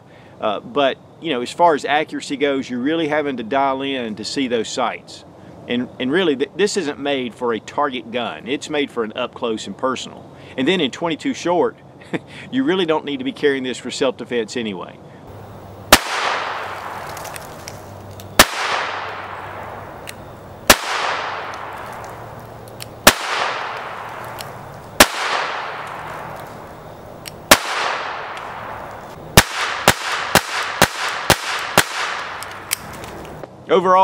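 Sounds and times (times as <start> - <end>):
pistol shots with echo: 15.9 - 17.2, 18.4 - 20.0, 20.7 - 22.3, 23.0 - 26.7, 27.5 - 32.8.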